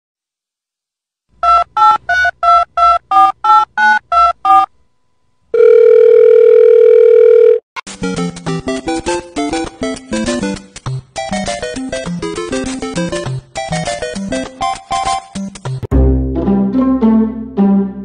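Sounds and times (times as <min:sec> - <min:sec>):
telephone keypad dialing tones: 0:01.4 - 0:04.7, 0:05.6 - 0:07.6
phone line tone: 0:05.5 - 0:07.6
bouncy game-style tune: 0:07.9 - 0:18.0.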